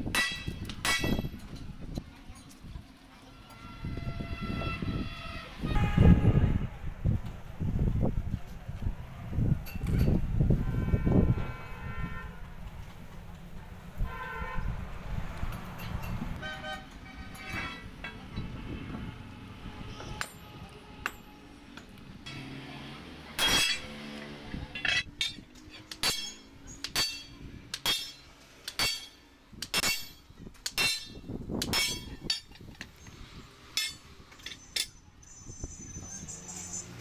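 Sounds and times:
sledgehammer ringing on steel: 0.1 - 1.3, 24.8 - 30.2, 30.8 - 32.5.

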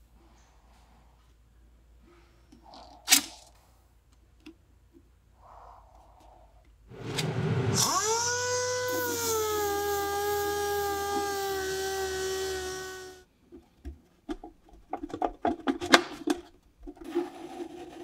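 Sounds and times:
electric sander sanding metal: 7.0 - 13.2.

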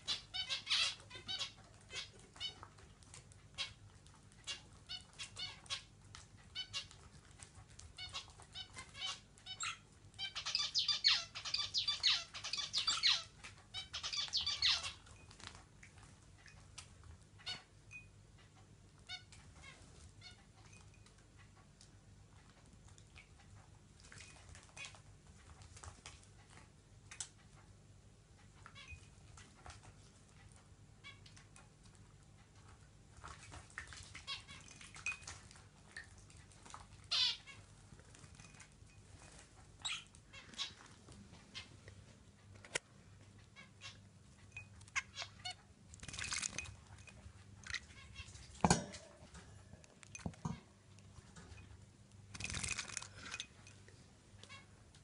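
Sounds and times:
budgerigars chirping: 8.0 - 15.0, 37.1 - 37.4
splashing and wing-fluttering: 33.1 - 39.6, 45.0 - 49.0, 52.3 - 53.5.

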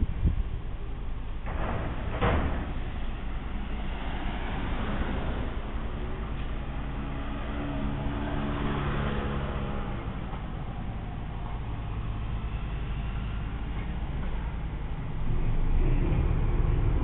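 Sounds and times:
low engine rumble: 0.0 - 17.0
motor scooter riding past: 3.9 - 10.9.

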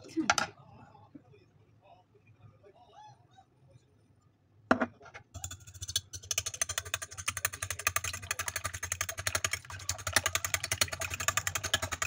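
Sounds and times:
fork beating eggs on plate: 5.4 - 12.0.

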